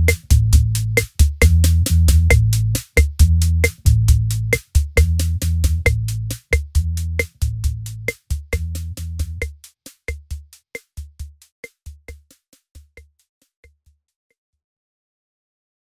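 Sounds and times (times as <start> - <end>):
bass line: 0.0 - 9.5
electronic drum-machine beat: 0.0 - 13.1.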